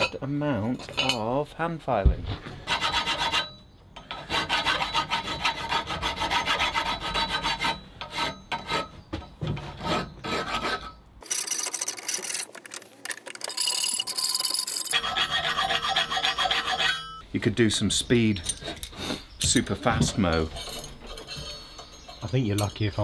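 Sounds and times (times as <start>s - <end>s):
hand file rasping on steel: 2.6s - 11.0s, 14.9s - 17.2s.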